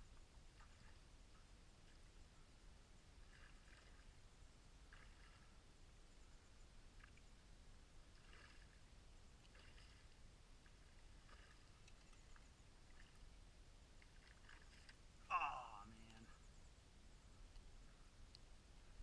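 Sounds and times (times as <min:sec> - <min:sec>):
faint water splashes from fish: 0:03.1 - 0:06.1, 0:06.8 - 0:16.4.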